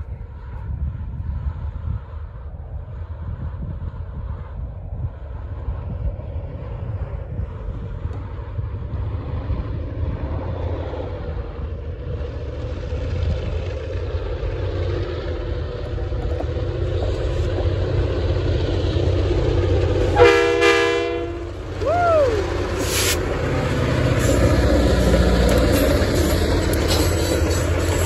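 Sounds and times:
diesel locomotives rumbling: 0:00.0 - 0:28.0
locomotive horn blast: 0:20.1 - 0:21.6.

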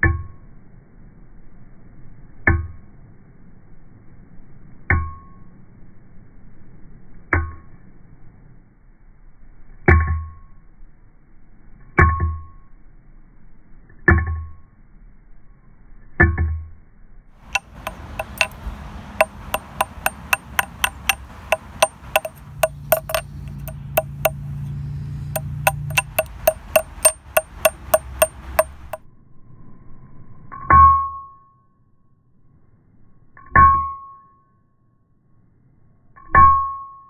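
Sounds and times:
fast ticking percussion music: 0:17.5 - 0:24.4, 0:25.4 - 0:29.0
hammer striking wire on metal: 0:17.5 - 0:24.5, 0:25.4 - 0:29.0.

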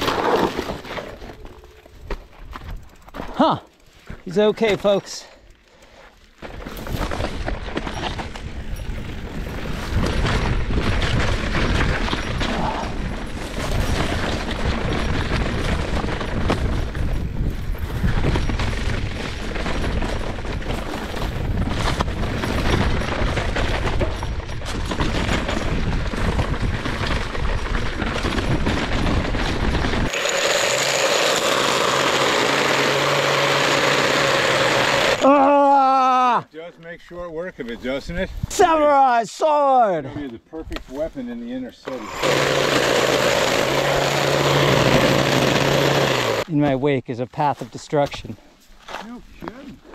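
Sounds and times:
bike rolling over dirt trail: 0:00.0 - 0:35.3
wind rumble on microphone: 0:06.9 - 0:30.1
hedge trimmer whining: 0:30.0 - 0:35.4, 0:41.8 - 0:46.5.

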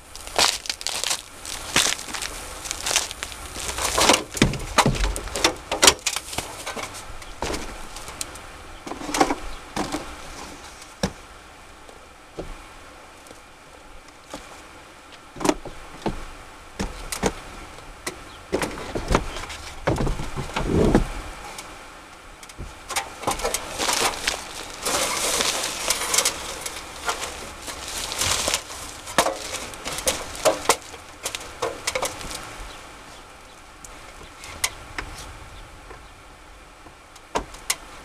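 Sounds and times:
cooler housing knocks and scraping: 0:03.4 - 0:08.2, 0:22.6 - 0:32.4.

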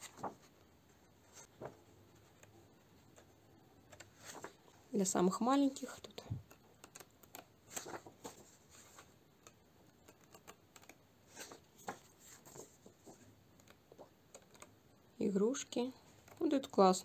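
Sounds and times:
paper pages turning: 0:00.0 - 0:00.5, 0:01.2 - 0:04.7, 0:05.7 - 0:14.7.

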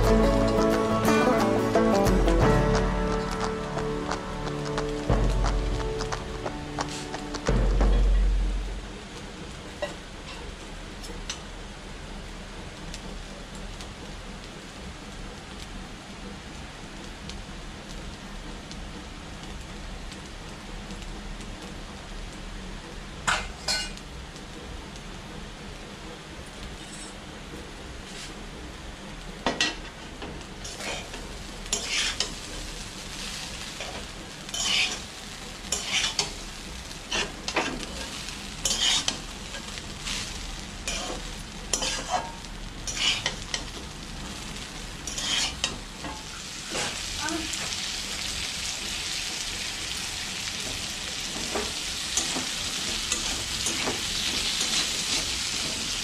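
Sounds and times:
rice sizzling in a pan: 0:00.0 - 0:56.0
metal spatula scraping a pan: 0:30.7 - 0:31.1, 0:31.7 - 0:32.4, 0:34.5 - 0:35.1, 0:35.7 - 0:36.4, 0:37.0 - 0:40.2, 0:40.8 - 0:43.7, 0:45.0 - 0:47.0.

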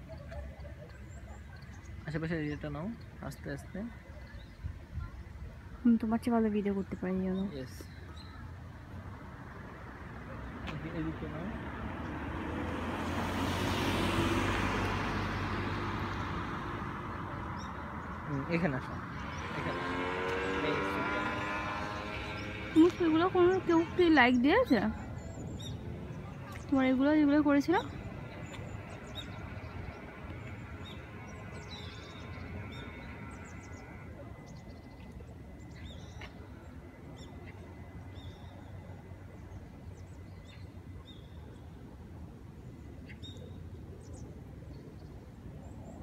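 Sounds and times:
outdoor background noise: 0:00.0 - 0:46.0
car passing by: 0:09.1 - 0:40.6.

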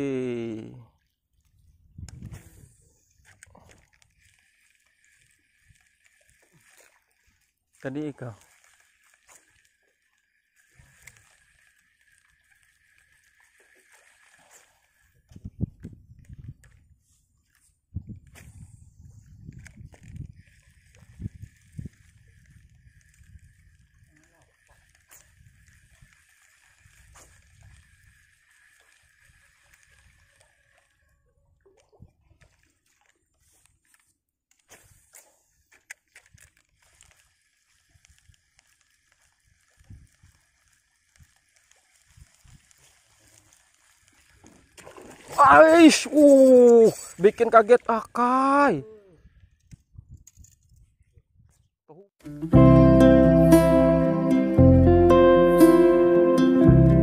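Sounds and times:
faint water sounds: 0:00.0 - 0:49.7.

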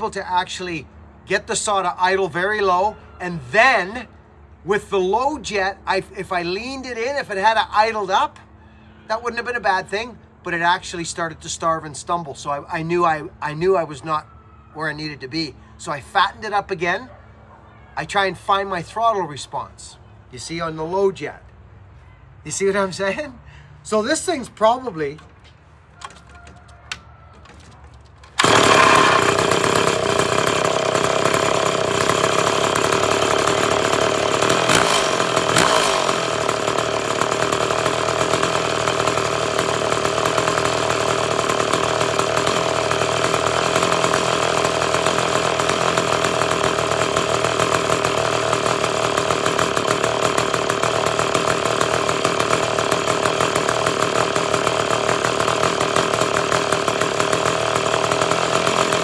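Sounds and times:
chainsaw idling: 0:00.0 - 0:02.6, 0:23.0 - 0:59.0
chainsaw engine surges: 0:23.0 - 0:59.0.

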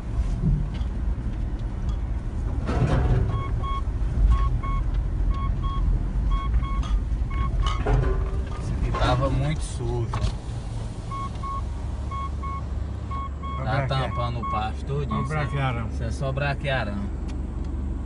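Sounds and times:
car interior rumble: 0:00.0 - 0:18.0
dashboard warning chime beeping: 0:03.3 - 0:07.8, 0:11.1 - 0:15.8.

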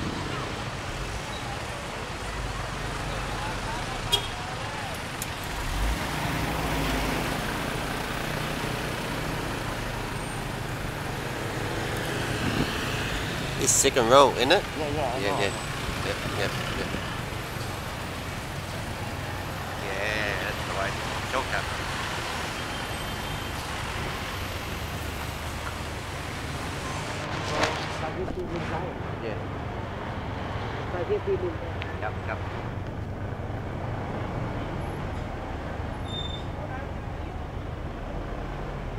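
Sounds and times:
traffic hiss: 0:00.0 - 0:29.4
road noise: 0:00.0 - 0:38.9
wind rushing: 0:11.5 - 0:13.7.

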